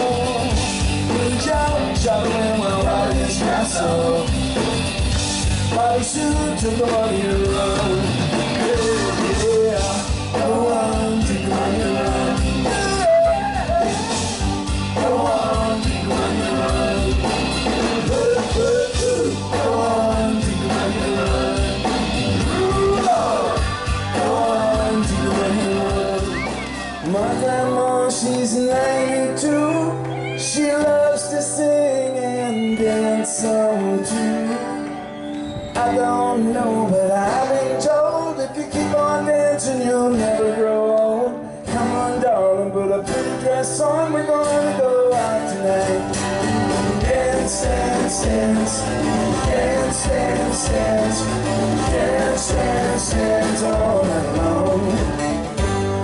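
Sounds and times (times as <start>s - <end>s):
drums and cymbals: 0.0s - 27.0s
electric bass: 0.0s - 30.1s, 41.7s - 56.0s
melodic lead line: 0.0s - 35.2s, 43.2s - 56.0s
acoustic guitars: 0.0s - 56.0s.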